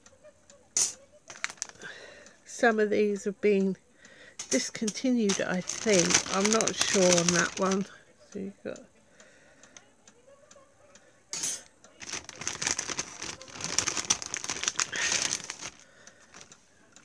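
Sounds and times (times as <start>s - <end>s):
plastic sleeves crinkling: 1.3s - 1.9s, 4.5s - 7.9s, 12.0s - 16.6s.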